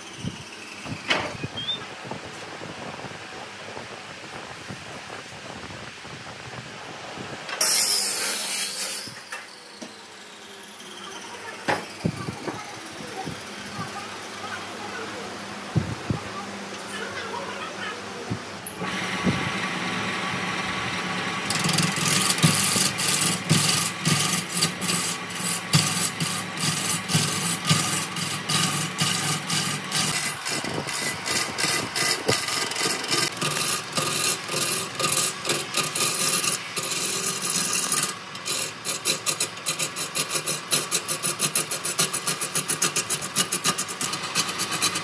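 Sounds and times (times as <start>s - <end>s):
power tool rasping wood: 7.6s - 14.6s, 18.8s - 45.0s.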